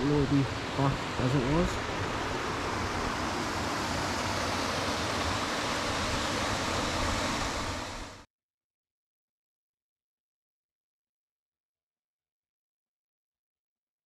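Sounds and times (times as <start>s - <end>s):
water rushing in small waterfall: 0.0s - 8.2s.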